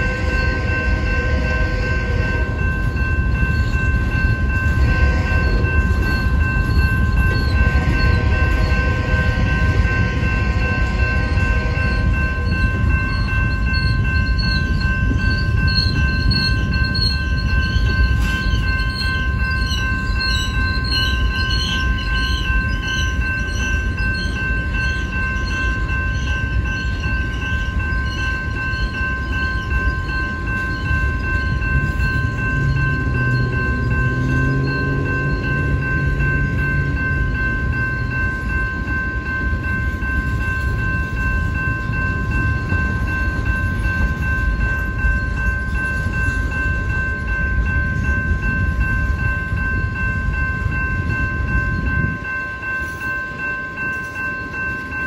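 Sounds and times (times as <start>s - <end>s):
crossing warning bell ringing: 0.0s - 55.0s
train wheels rumbling on rails: 0.0s - 55.0s.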